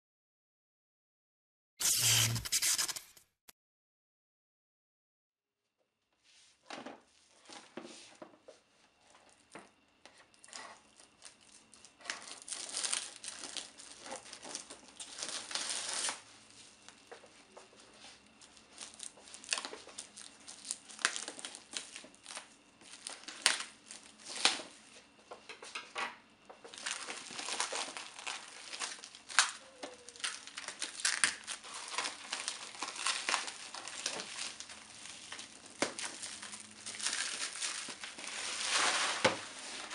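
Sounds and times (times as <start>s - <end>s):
plastic wrap crinkling and tearing: 10.2s - 17.1s, 17.8s - 24.7s, 26.7s - 39.9s.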